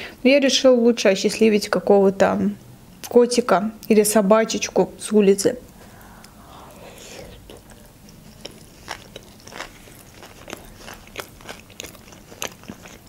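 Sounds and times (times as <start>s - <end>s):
wet mouth clicks: 5.6s - 13.0s
close chewing: 5.7s - 13.0s.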